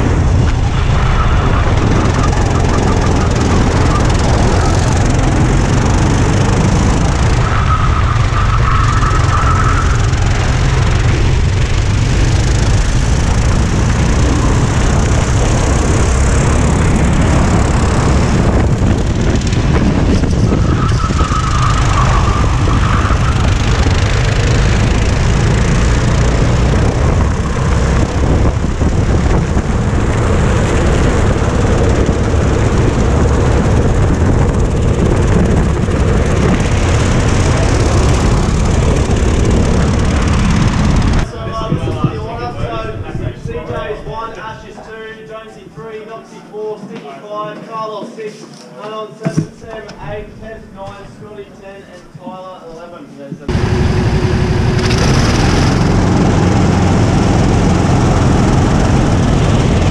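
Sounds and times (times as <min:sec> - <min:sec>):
race kart engine running: 0:00.0 - 0:43.0, 0:53.5 - 0:59.9
wind rumble on microphone: 0:00.0 - 0:44.5, 0:53.5 - 0:59.9.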